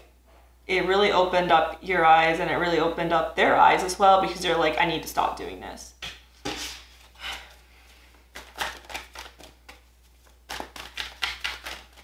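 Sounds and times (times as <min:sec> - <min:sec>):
cards being shuffled: 0:08.2 - 0:12.0.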